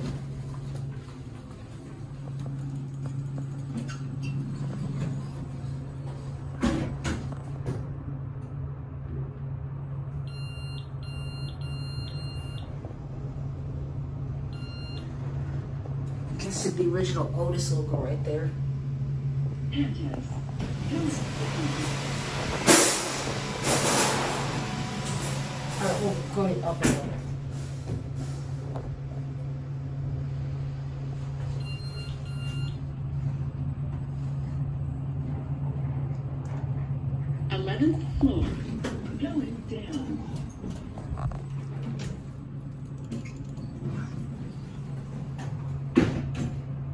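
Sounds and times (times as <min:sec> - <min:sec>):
elevator hum: 0:00.0 - 0:46.9.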